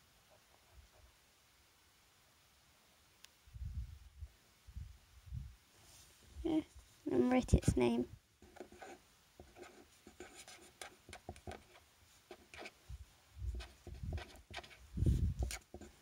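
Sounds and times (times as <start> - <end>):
pen scratching on paper: 8.4 - 12.8, 13.4 - 16.0.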